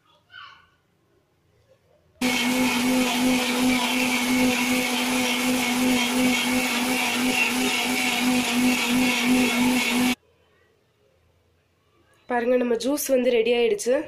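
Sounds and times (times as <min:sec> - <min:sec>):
mixer grinder motor humming: 0:02.2 - 0:10.2.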